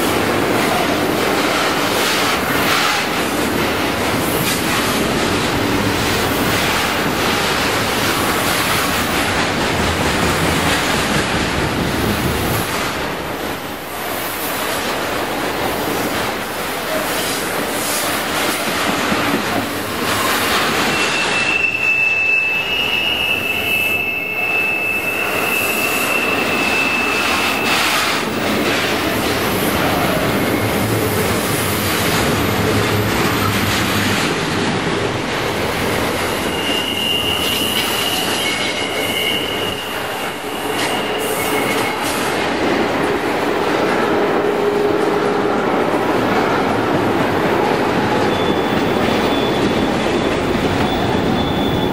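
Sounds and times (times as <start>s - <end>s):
train wheels rattling on rails: 0.0s - 51.9s
high wheel squeal: 20.2s - 28.3s, 36.3s - 42.2s, 48.2s - 51.9s.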